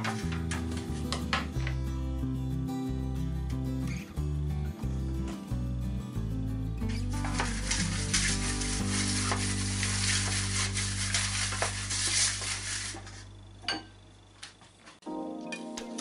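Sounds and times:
brush scrubbing in metal pan: 7.2s - 13.3s.

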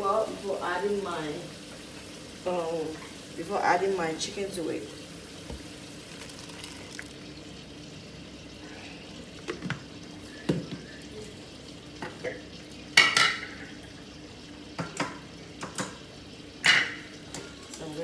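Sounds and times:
onions sizzling in oil: 0.0s - 18.0s
liquid poured into pot: 5.0s - 8.0s.

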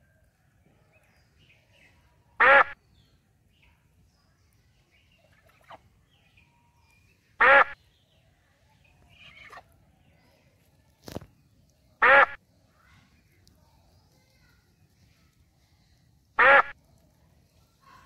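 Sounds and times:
duck quacking: 2.4s - 2.8s, 7.4s - 7.8s, 12.0s - 12.4s, 16.4s - 16.7s.

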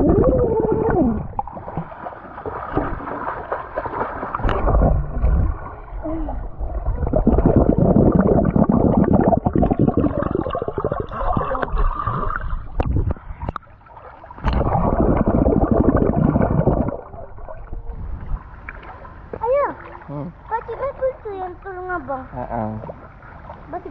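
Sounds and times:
underwater bubbling and rushing: 0.0s - 20.0s.

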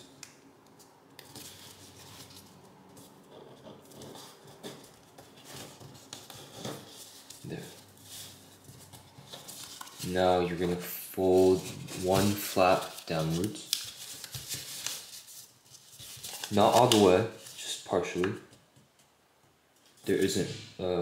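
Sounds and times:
paper rustling and crinkling: 0.8s - 10.7s, 11.3s - 17.8s.

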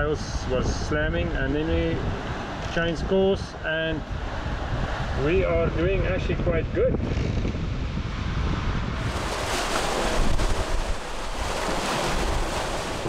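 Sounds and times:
wind buffeting microphone: 0.0s - 13.0s
sea water rushing along hull: 9.0s - 13.0s.

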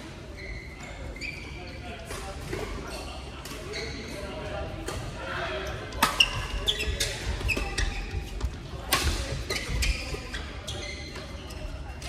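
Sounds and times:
shoes squeaking on court: 0.3s - 4.3s, 6.0s - 12.0s
racket hitting shuttlecock: 6.0s - 6.6s, 8.9s - 9.7s.

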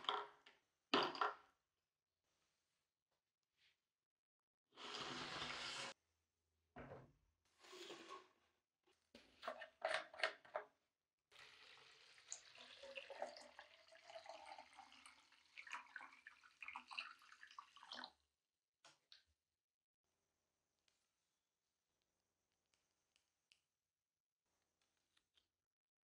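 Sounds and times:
liquid pouring into bottle: 11.4s - 18.1s.

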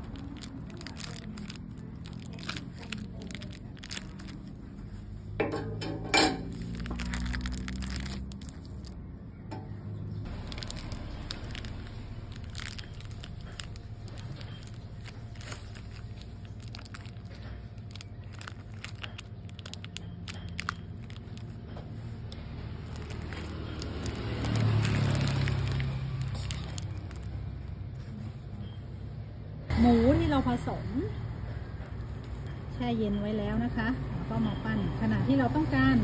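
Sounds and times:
plastic sheet crackling: 0.0s - 5.3s, 6.3s - 9.0s, 10.3s - 28.2s
low rumble: 10.1s - 27.8s.

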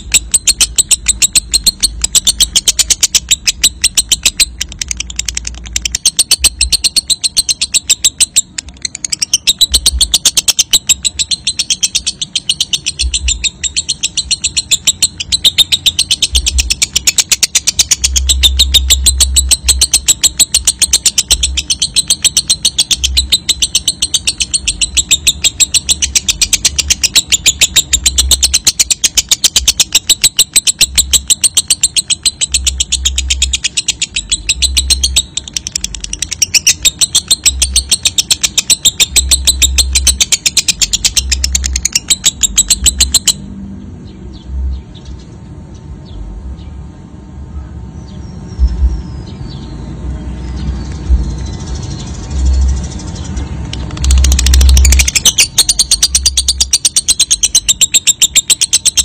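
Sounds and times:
bird chattering trill: 0.0s - 43.5s, 50.4s - 59.0s
low rumbles: 39.0s - 57.8s.

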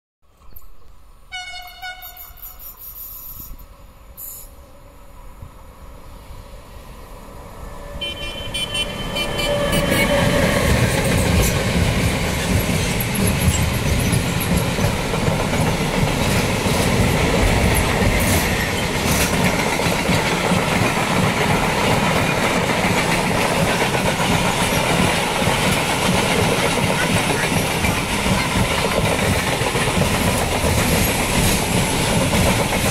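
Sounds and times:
train horn: 1.3s - 3.1s, 7.8s - 10.8s
freight wagons rumbling over rails: 8.8s - 32.9s.

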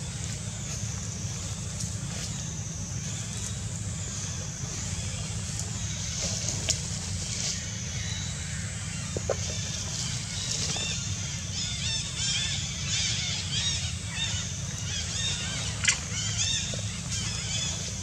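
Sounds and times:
steady low rumble: 0.0s - 18.0s
high-pitched chirping calls: 11.4s - 17.7s.

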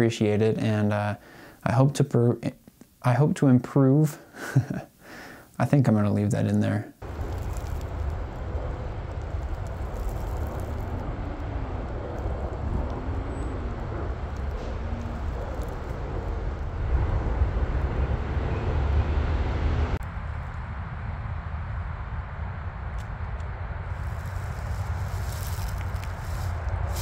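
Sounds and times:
highway traffic rumble: 7.0s - 27.0s
vehicles passing by: 7.0s - 27.0s.

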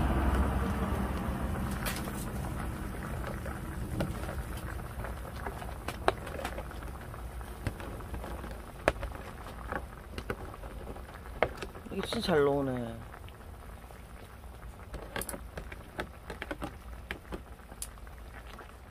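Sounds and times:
stew bubbling in a pot: 0.0s - 18.9s.

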